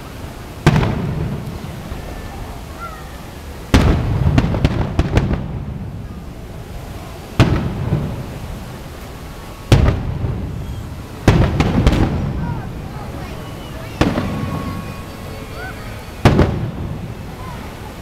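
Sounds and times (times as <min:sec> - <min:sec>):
firework booms: 0:00.6 - 0:02.5, 0:03.7 - 0:08.9, 0:09.6 - 0:17.6
small firework pops: 0:03.7 - 0:05.7, 0:07.4 - 0:08.3, 0:09.7 - 0:10.4, 0:11.2 - 0:12.3, 0:13.9 - 0:14.7.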